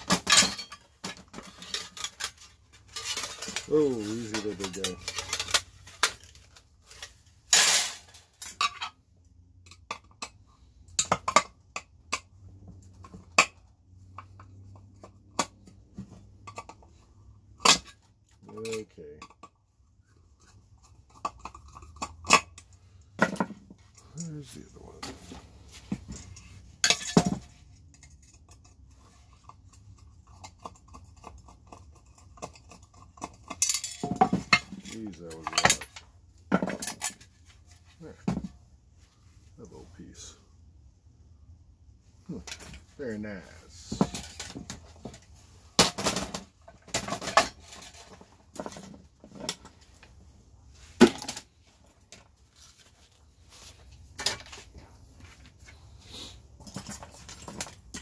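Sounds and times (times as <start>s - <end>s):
metal parts clattering: 0.0s - 9.0s, 21.2s - 29.5s, 32.4s - 37.6s, 42.4s - 50.0s, 56.6s - 58.0s.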